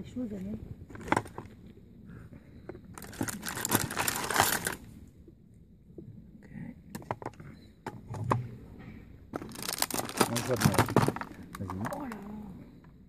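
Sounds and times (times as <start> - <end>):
craft supplies rattling in tool case: 3.0 - 4.8, 9.4 - 12.2.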